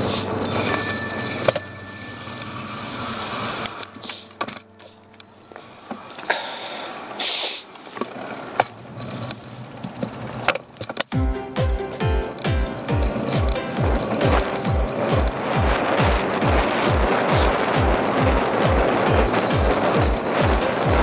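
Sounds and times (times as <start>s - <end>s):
bike clicks and rattles: 0.0s - 11.2s, 12.2s - 21.0s
bike tyre road noise: 0.0s - 11.2s, 12.1s - 21.0s
brief hiss: 5.6s - 7.7s.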